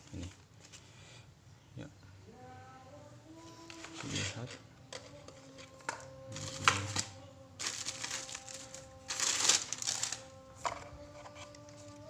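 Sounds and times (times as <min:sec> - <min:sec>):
plastic packaging crinkling: 0:06.4 - 0:10.4.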